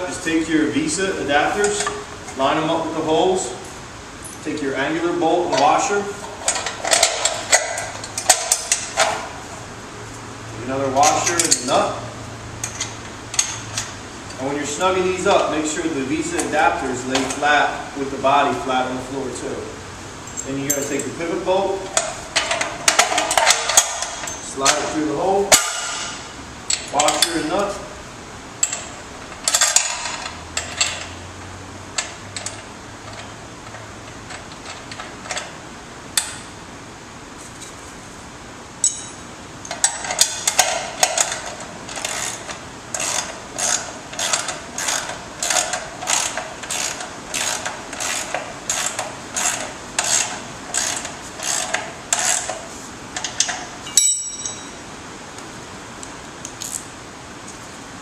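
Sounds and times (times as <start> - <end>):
metal clinks: 38.8 - 41.4, 53.4 - 54.8.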